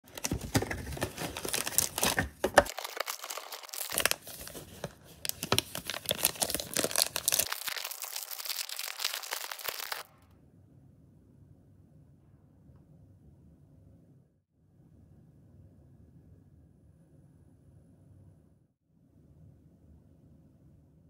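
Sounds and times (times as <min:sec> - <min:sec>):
foil pack tearing open: 0:00.1 - 0:10.1
foil wrapper crinkling: 0:00.1 - 0:10.1.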